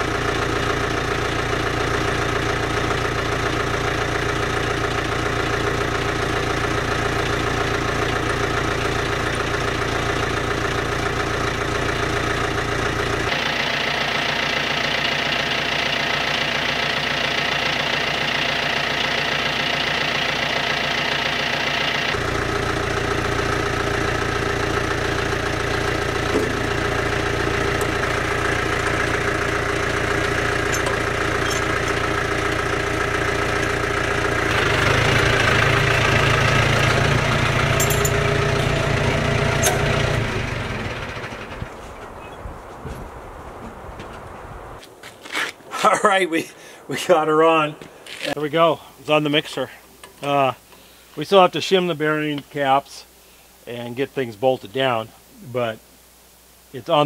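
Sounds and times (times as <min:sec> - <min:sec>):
tractor engine idling: 0:00.0 - 0:42.4.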